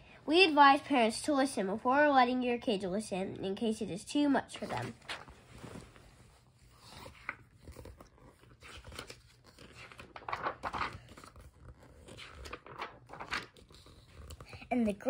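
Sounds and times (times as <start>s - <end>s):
book pages turning: 4.6s - 14.7s.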